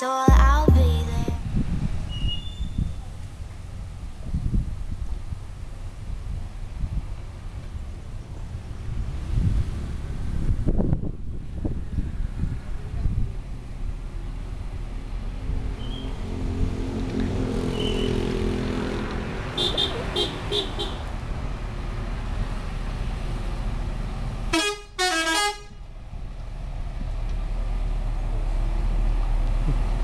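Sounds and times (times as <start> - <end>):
bus engine pulling uphill: 0.4 - 30.0
multi-tone bus horn blasts: 19.6 - 21.1, 24.5 - 25.8.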